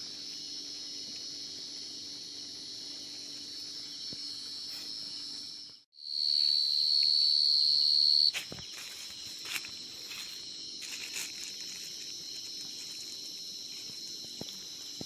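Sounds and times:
chorus of crickets: 0:00.0 - 0:15.0
cricket trilling close by: 0:00.0 - 0:15.0
hands rustling in wet leaves: 0:08.3 - 0:15.0.

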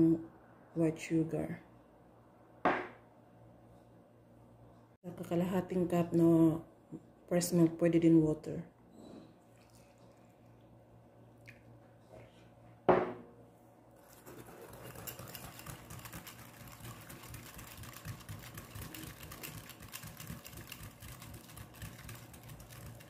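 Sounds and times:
wire whisk rattling in glass bowl: 0:14.0 - 0:23.0.

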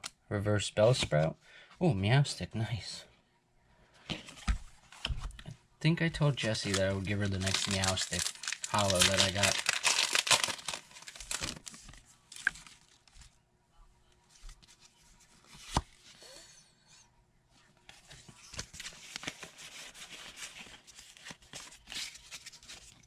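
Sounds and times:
foil pack crinkling: 0:06.4 - 0:13.2.

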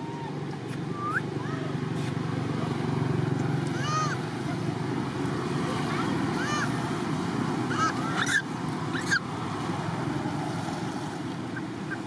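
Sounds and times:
macaque squeaks: 0:07.7 - 0:09.3.

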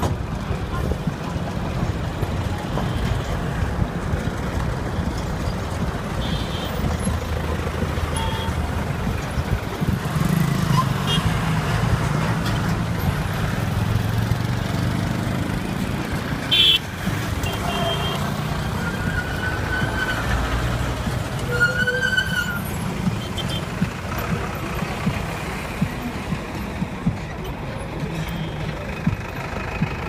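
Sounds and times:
bus engine rumble and road noise: 0:00.0 - 0:30.0
vehicle horns: 0:06.1 - 0:07.1, 0:08.0 - 0:08.8, 0:10.3 - 0:11.5, 0:16.4 - 0:20.6, 0:21.3 - 0:23.9.

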